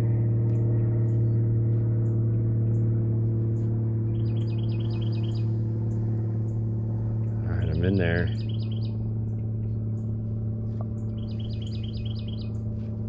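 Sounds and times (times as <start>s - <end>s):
steady low hum: 0.0s - 13.0s
bird chirping: 4.1s - 6.0s, 7.3s - 9.0s, 11.0s - 12.6s.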